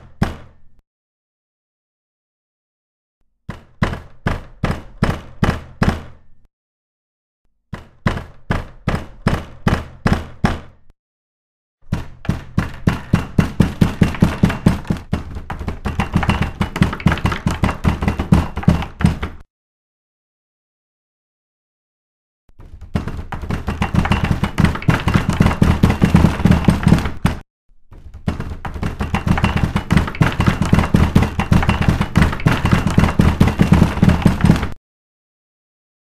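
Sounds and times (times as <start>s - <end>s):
rhythmic knocking: 23.1s - 27.4s, 28.3s - 34.8s.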